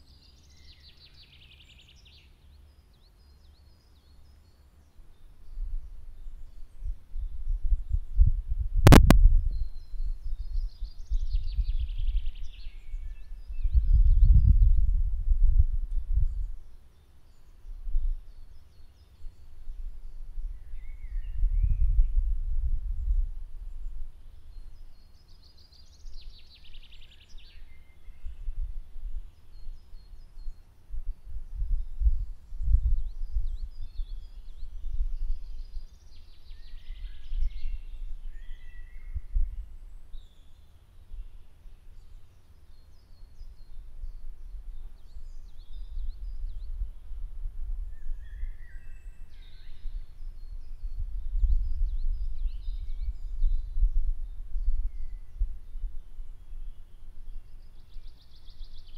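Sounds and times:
birds chirping: 0:00.0 - 0:15.0
faint bird chirps: 0:00.0 - 0:58.9
songbird singing: 0:00.0 - 0:58.9
low rumble: 0:05.6 - 0:16.7.

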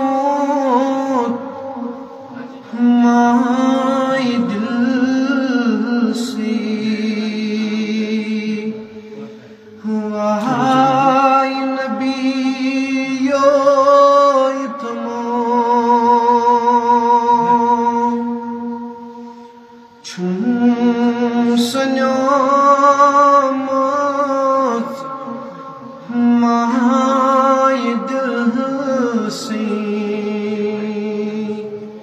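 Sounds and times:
man singing solo: 0:09.9 - 0:18.7.

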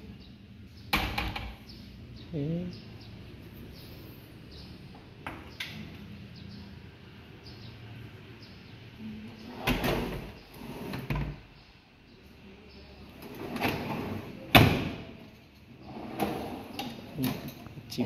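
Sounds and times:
cabinet door banging shut: 0:14.5 - 0:15.1.

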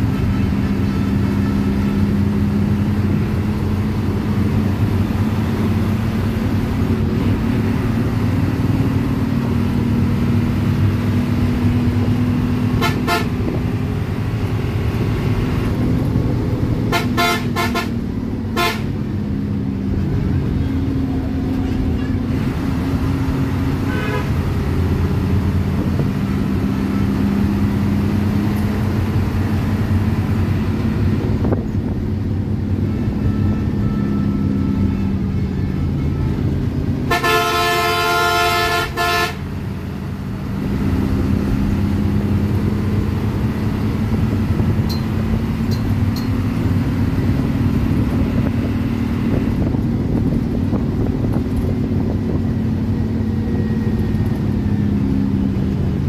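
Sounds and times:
bus diesel engine running: 0:00.0 - 0:56.0
bus horn blast: 0:12.6 - 0:13.8, 0:16.8 - 0:19.1, 0:23.7 - 0:24.7, 0:33.1 - 0:39.7.

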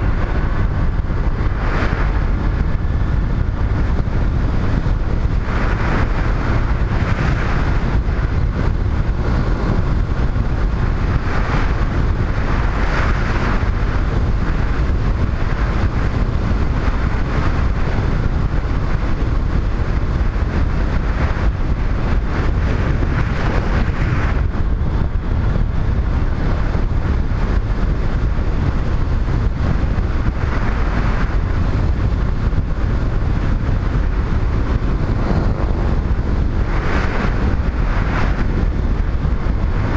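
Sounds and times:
motorcycle road noise: 0:00.0 - 0:39.9
wind rushing over microphone: 0:00.0 - 0:39.9.

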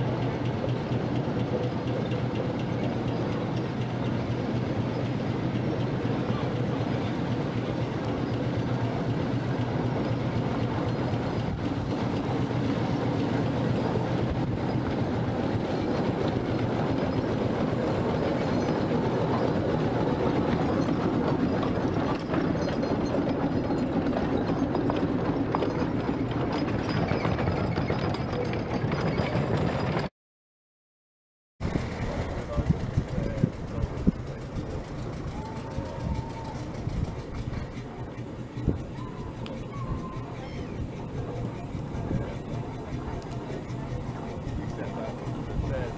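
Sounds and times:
steam engine clatter: 0:00.0 - 0:30.1, 0:31.6 - 0:45.9
iron wheels grinding on road: 0:31.6 - 0:45.9.

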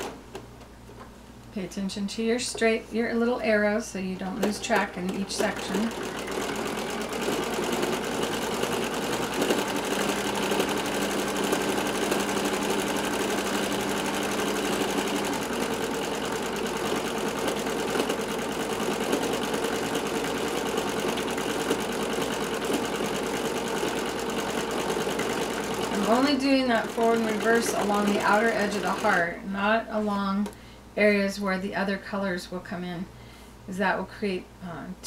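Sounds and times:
sewing machine running: 0:04.4 - 0:29.4.

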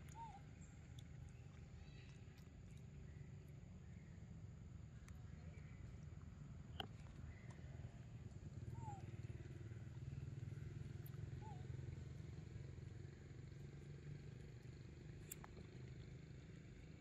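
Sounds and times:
faint low rumble: 0:00.0 - 0:17.0
click: 0:15.2 - 0:15.6.

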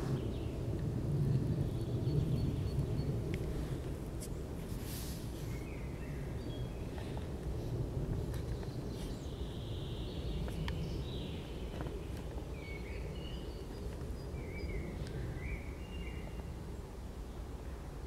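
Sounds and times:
steady low rumble: 0:00.0 - 0:18.0
birds chirping: 0:05.4 - 0:07.3, 0:08.4 - 0:17.5.

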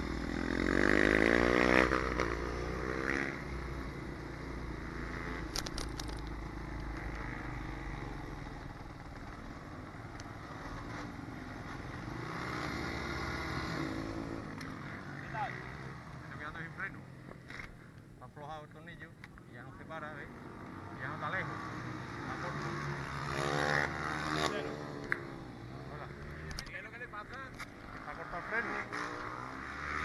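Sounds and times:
pit bike engine revving: 0:00.0 - 0:03.7, 0:20.6 - 0:26.6, 0:27.9 - 0:30.0.

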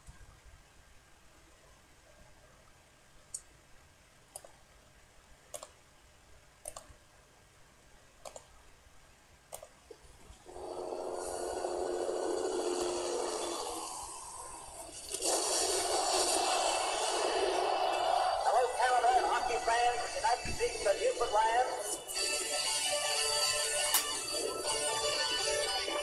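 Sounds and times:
sharp clicks: 0:04.3 - 0:04.6, 0:05.5 - 0:05.8, 0:06.6 - 0:07.0, 0:08.2 - 0:08.5, 0:09.5 - 0:09.8
loud steady rushing noise: 0:10.6 - 0:22.1.

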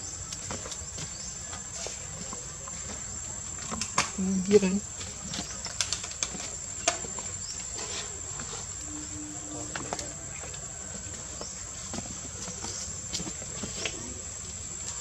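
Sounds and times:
small clicks and rustles: 0:05.3 - 0:08.5
high-pitched steady whine: 0:08.8 - 0:10.2.

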